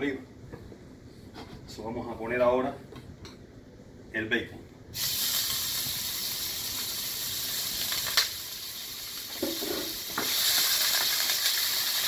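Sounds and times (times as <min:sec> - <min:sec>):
bacon sizzling in a pan: 0:05.0 - 0:12.0.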